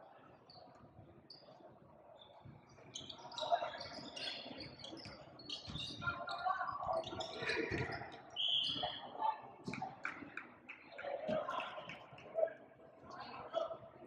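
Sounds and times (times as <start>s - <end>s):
voices in background: 0.0s - 14.0s
sneakers squeaking on court: 2.2s - 9.0s.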